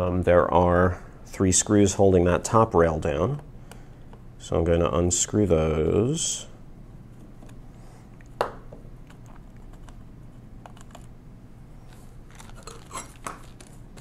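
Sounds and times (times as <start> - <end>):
plastic rustling: 11.8 - 14.0.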